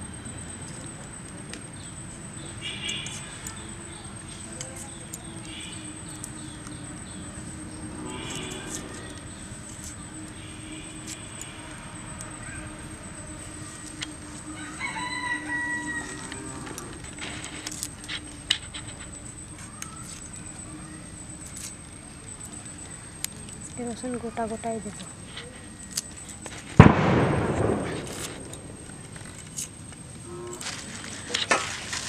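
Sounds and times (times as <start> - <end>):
garlic skins crackling: 2.6 - 32.0
rooster crowing: 14.2 - 17.2.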